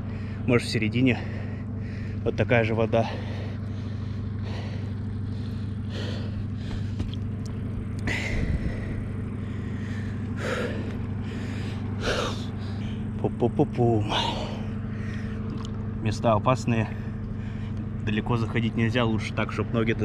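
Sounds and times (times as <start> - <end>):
ship diesel engine droning: 0.0 - 20.0.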